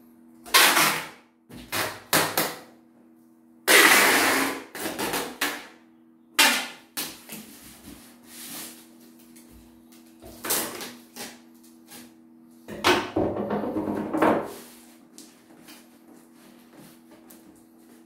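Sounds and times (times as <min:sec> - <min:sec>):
packing tape ripping off roll: 0:00.5 - 0:02.6, 0:03.7 - 0:05.7.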